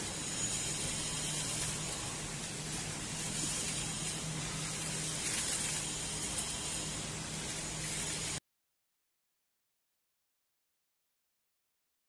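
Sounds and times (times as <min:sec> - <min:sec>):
steady hiss: 0:00.0 - 0:08.4.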